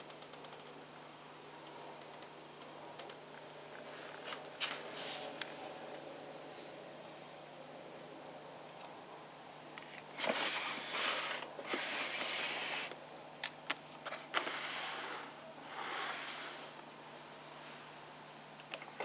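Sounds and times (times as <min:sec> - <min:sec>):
plastic drawer sliding: 0:10.2 - 0:12.9.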